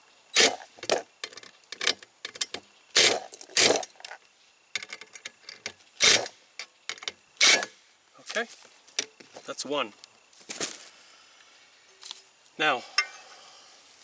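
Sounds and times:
impact driver bursts: 0:00.4 - 0:00.7, 0:07.4 - 0:07.8.

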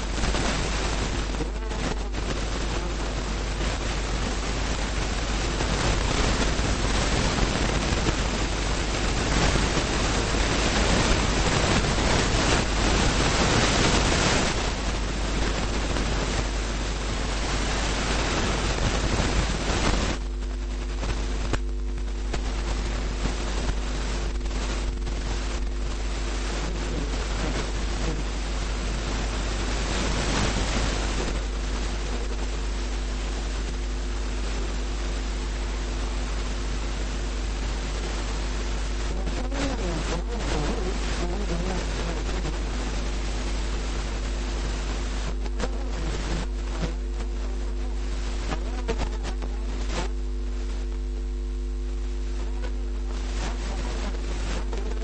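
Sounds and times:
low electrical hum: 0:00.0 - 0:55.0
steady hiss: 0:00.0 - 0:55.0.

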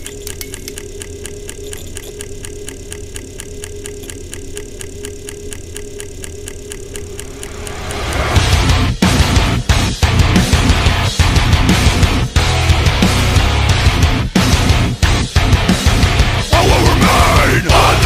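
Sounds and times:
film projector clattering: 0:00.0 - 0:09.3
low hum: 0:00.0 - 0:18.0.

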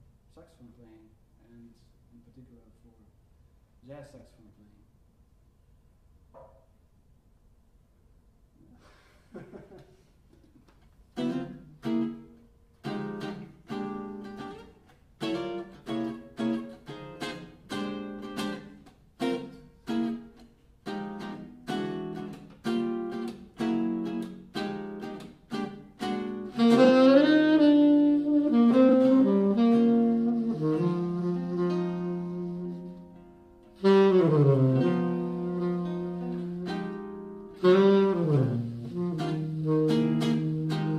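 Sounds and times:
saxophone melody: 0:11.2 - 0:40.9.

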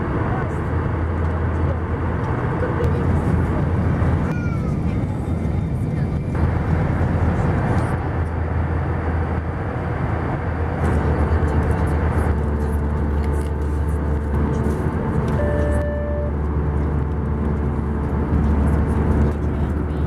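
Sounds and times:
aircraft cabin rumble: 0:00.0 - 0:20.0
brief steady tone: 0:15.3 - 0:16.4.

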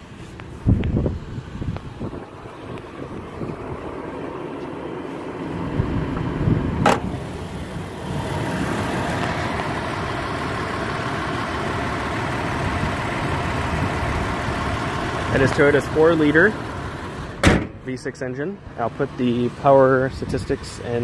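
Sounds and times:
car engine idling: 0:00.0 - 0:21.0
hood clunk: 0:06.1 - 0:07.4, 0:17.3 - 0:17.9.

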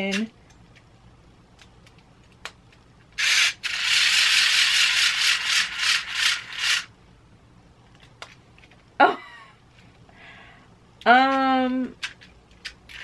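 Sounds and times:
hair braiding tool motor whirring: 0:03.2 - 0:06.9.

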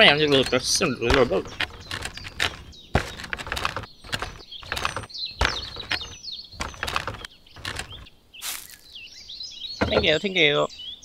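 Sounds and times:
wooden sticks knocking: 0:00.0 - 0:08.0, 0:09.8 - 0:10.2
small birds chirping: 0:00.0 - 0:11.0.

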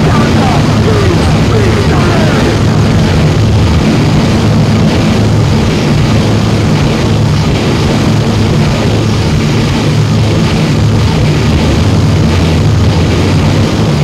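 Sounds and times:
low droning hum: 0:00.0 - 0:14.0
wall of distorted noise: 0:00.0 - 0:14.0.

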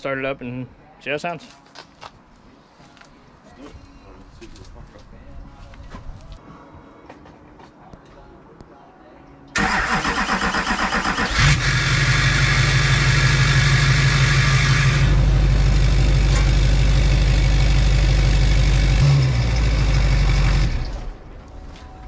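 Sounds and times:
diesel engine running loud: 0:11.2 - 0:21.2.

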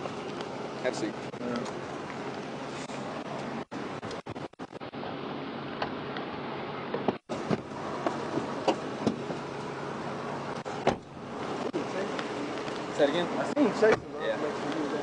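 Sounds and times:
knocks and clunks: 0:06.9 - 0:09.5, 0:10.6 - 0:11.8.

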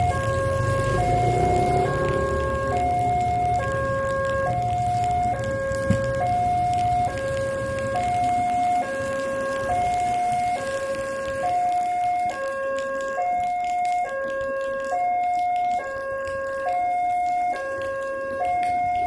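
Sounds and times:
level crossing warning bell: 0:00.0 - 0:14.1.

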